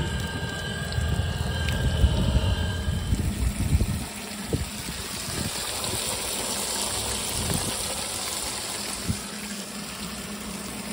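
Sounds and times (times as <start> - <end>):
water spraying from hole: 0.0 - 10.9.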